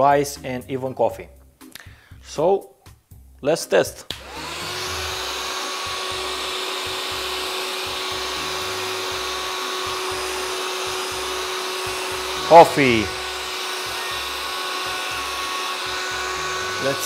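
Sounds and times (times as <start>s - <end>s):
vacuum motor whine: 4.1s - 17.0s.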